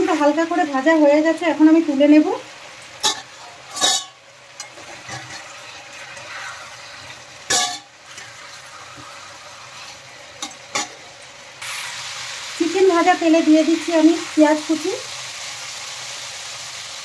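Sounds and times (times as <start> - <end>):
chicken sizzling in hot oil: 0.0 - 17.0
metal spatula scraping pan: 3.0 - 11.0.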